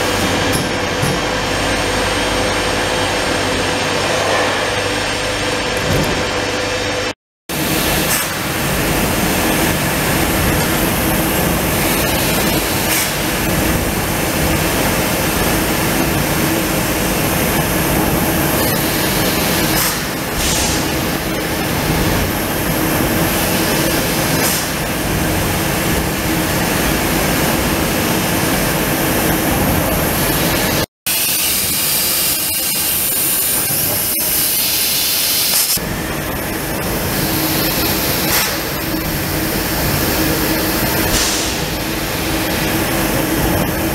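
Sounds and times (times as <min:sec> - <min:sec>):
machine hum: 0:00.0 - 0:43.9
laser cutter hissing: 0:30.0 - 0:43.9.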